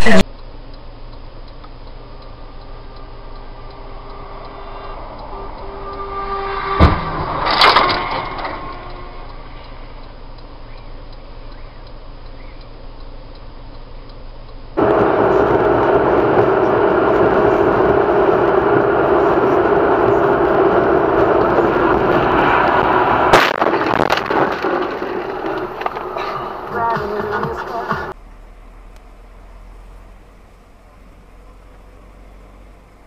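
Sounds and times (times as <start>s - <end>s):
car road and engine noise: 0.0s - 33.0s
collision bang: 6.7s - 9.2s.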